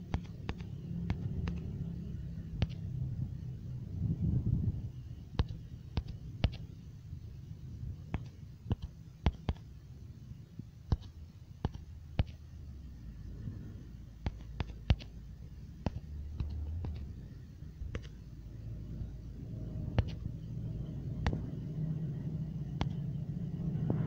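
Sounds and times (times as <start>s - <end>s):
low rumbling hum: 0.0s - 24.0s
taps on phone touchscreen: 0.1s - 1.7s, 8.1s - 9.7s.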